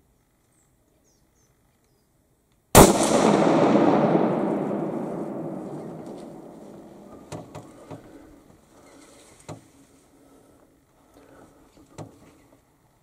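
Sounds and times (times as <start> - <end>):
rifle shot echoing: 2.8 - 7.5.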